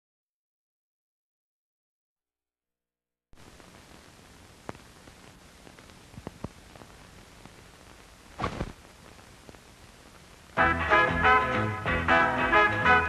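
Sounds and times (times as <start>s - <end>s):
film soundtrack hiss: 3.4s - 13.0s
clicks and pops: 4.6s - 4.8s, 8.4s - 9.6s
brassy swing music: 10.6s - 13.0s.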